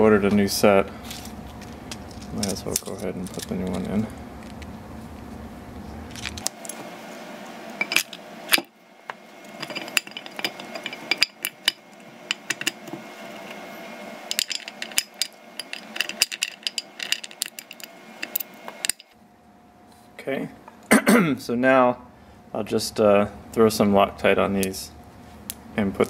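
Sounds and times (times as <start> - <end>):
steel parts clinking: 1.1 - 4.0, 9.4 - 13.6, 14.2 - 19.1.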